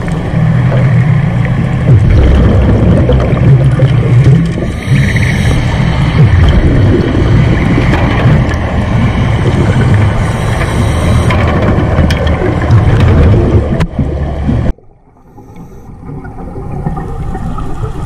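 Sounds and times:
underwater rumble of moving water: 0.0s - 18.0s.

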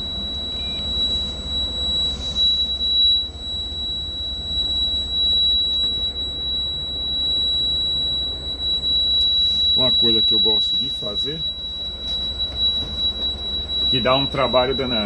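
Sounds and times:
air compressor: 0.0s - 6.6s
high-pitched warning buzzer: 0.0s - 15.0s.

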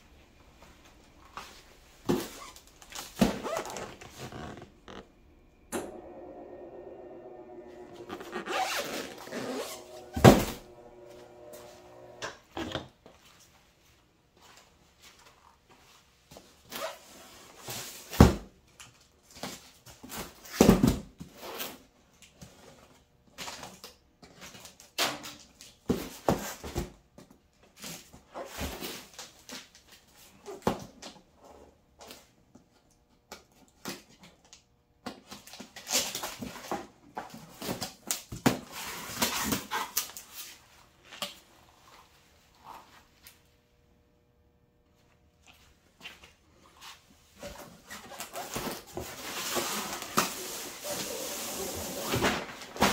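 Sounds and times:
cardboard rustling and scraping: 1.4s - 5.1s, 6.0s - 12.2s, 46.7s - 52.9s
boxes thudding on concrete floor: 3.0s - 3.6s, 9.6s - 10.7s.

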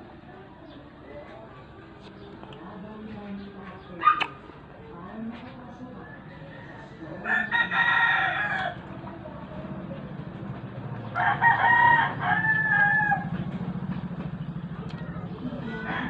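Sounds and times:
rooster crowing: 6.0s - 8.8s, 11.1s - 13.4s, 15.6s - 16.0s.

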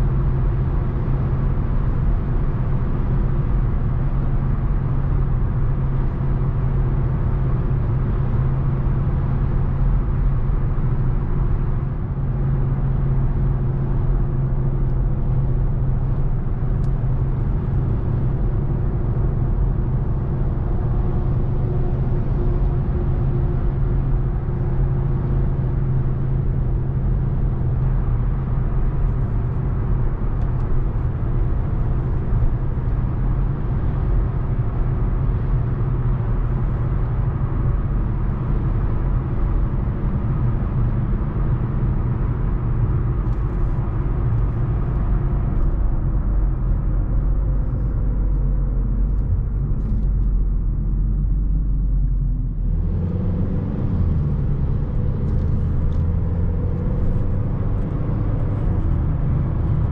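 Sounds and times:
car engine hum: 0.0s - 59.9s
road rumble: 0.0s - 59.9s.

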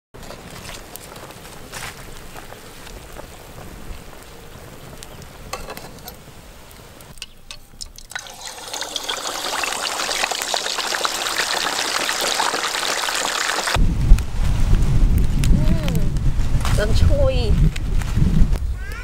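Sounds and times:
hot oil sizzling and crackling: 0.5s - 13.8s
water trickling: 7.6s - 13.8s.

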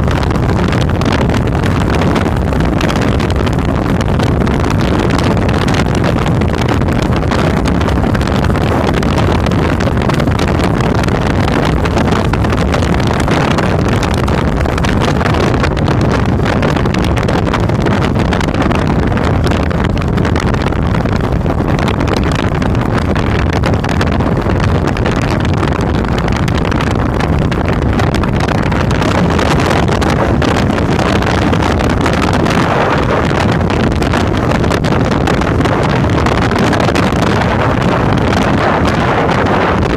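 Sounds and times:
motorcycle engine running: 0.0s - 39.9s
wind noise on microphone: 0.0s - 39.9s.

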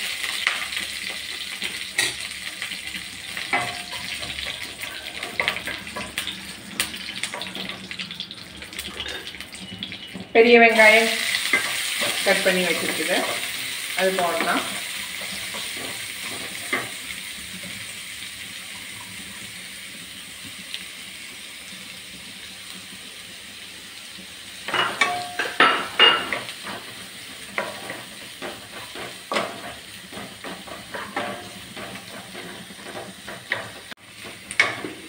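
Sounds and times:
onions sizzling in oil: 0.0s - 35.0s
wooden spatula scraping pan: 27.6s - 33.9s.

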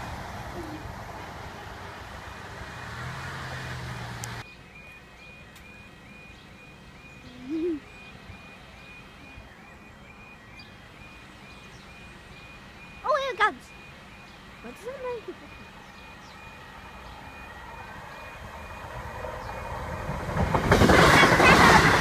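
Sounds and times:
faint high chirp: 4.4s - 19.8s.

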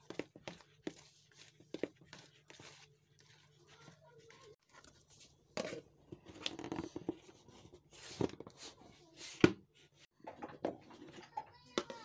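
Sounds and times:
spoon scraping sticky dough: 0.0s - 6.5s.

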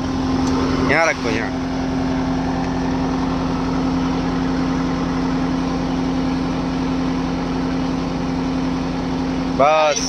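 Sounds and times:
tractor diesel engine idling: 0.0s - 10.0s.

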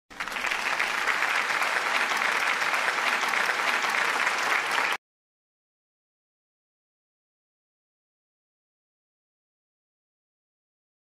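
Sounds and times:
applause: 0.1s - 5.0s.

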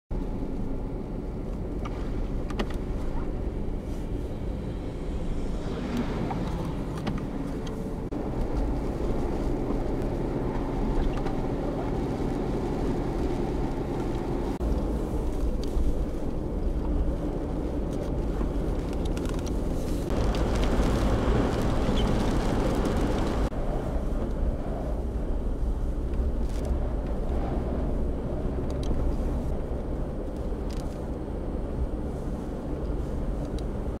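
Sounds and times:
car engine and road rumble: 0.1s - 34.0s
rushing noise: 4.3s - 10.1s.

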